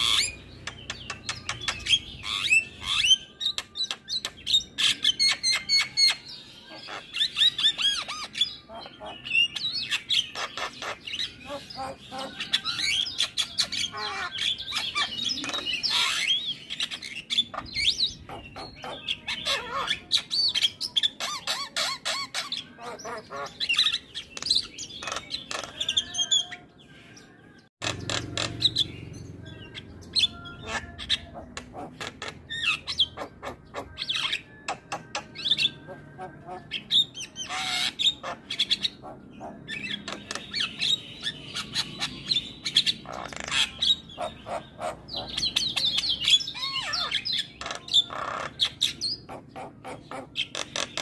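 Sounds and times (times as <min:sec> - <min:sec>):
myna singing: 0:25.0 - 0:41.3.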